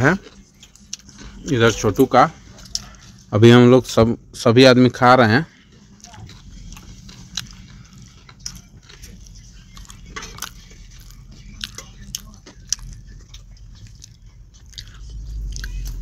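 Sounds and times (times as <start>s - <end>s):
person chewing: 0.0s - 3.3s, 5.5s - 16.0s
steady low hum: 0.0s - 16.0s.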